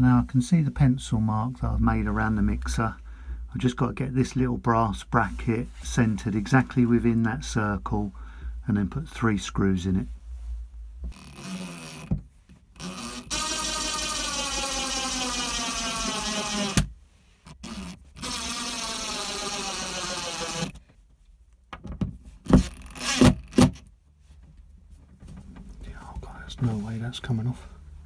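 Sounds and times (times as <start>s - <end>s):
impact driver driving screws: 12.8s - 16.9s, 17.5s - 20.8s, 22.5s - 23.8s.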